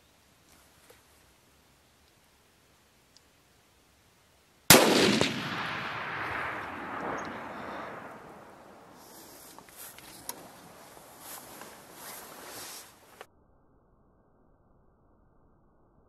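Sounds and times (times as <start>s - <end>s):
rifle shot with rolling echo: 4.7s - 9.3s.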